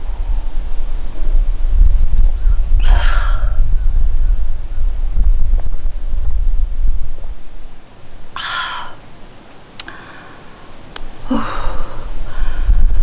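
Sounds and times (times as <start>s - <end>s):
wind on microphone: 0.0s - 9.1s, 11.0s - 13.0s
woman sighing: 8.4s - 9.0s, 11.2s - 12.7s
sharp clicks: 9.8s - 10.0s.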